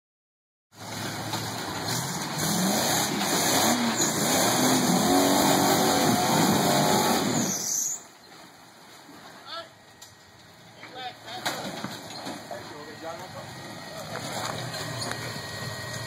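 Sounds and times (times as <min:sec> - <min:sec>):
engine revving under load: 0:00.8 - 0:07.7, 0:13.2 - 0:16.0.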